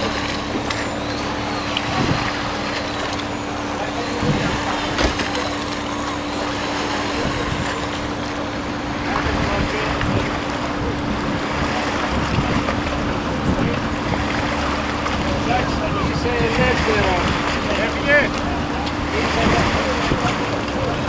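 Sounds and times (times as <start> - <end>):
outboard motor running: 0.0 - 21.0
propeller churning water: 0.0 - 21.0
wind buffeting microphone: 9.2 - 17.7.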